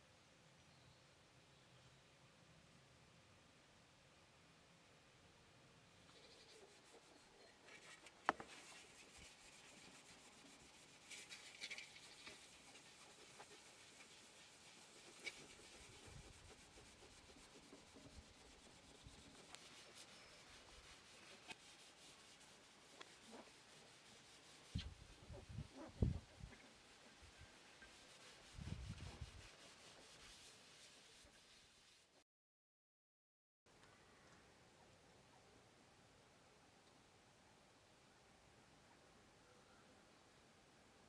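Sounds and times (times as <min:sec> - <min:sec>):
cloth rubbing pot: 0:06.1 - 0:32.2.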